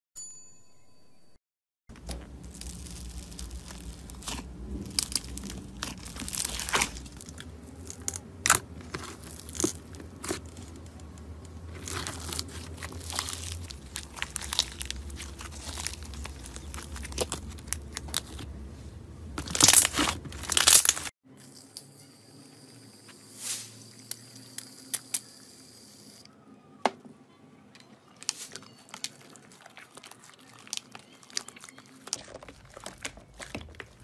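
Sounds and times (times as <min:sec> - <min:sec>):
slime crackling and popping: 0:02.0 - 0:18.4, 0:19.4 - 0:21.1, 0:28.3 - 0:34.0.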